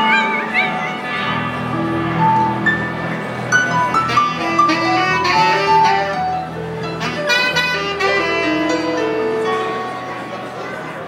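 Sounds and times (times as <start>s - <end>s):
electric guitar: 0.0s - 11.0s
saxophone slow melody: 1.2s - 10.3s.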